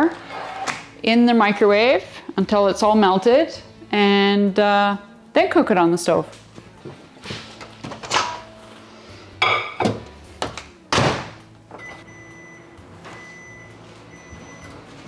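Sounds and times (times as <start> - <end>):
microwave humming: 9.9 - 15.0
microwave beeps: 11.8 - 14.9.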